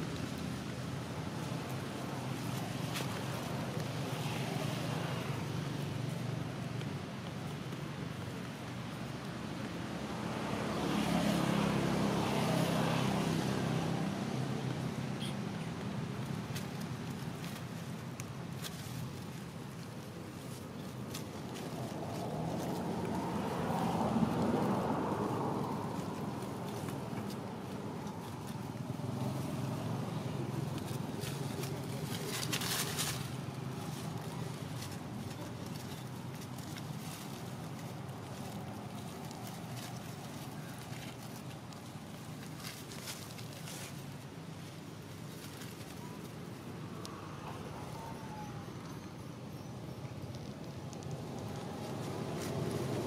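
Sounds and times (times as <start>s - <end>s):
dry leaves rustling: 0.0s - 53.0s
vehicle engine hum passing by: 0.0s - 53.0s.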